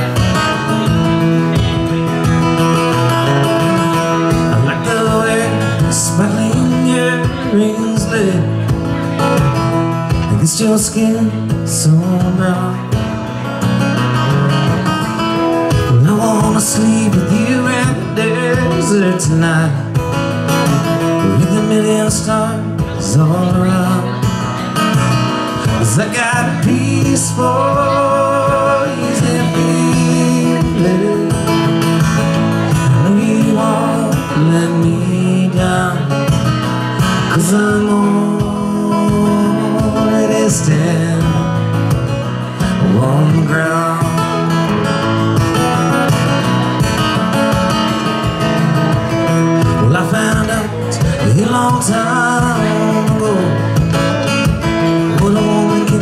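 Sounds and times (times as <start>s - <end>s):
acoustic guitar strumming: 0.0s - 56.0s
man singing through pa: 3.6s - 8.7s, 10.2s - 13.0s, 15.8s - 19.9s, 21.1s - 24.2s, 25.6s - 31.8s, 32.6s - 36.5s, 37.1s - 41.7s, 42.6s - 44.6s, 49.6s - 54.0s, 54.6s - 56.0s.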